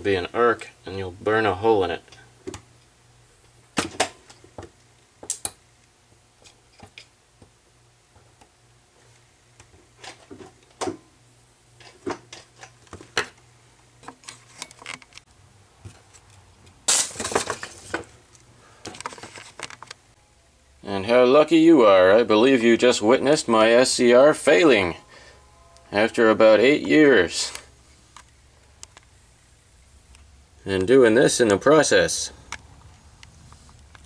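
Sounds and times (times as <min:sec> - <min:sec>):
spot welder snapping: 0:05.2 - 0:05.9.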